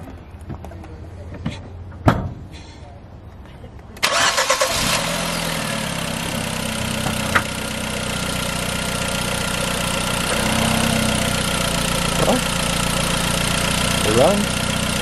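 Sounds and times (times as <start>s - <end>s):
car engine idling: 4.0s - 15.0s.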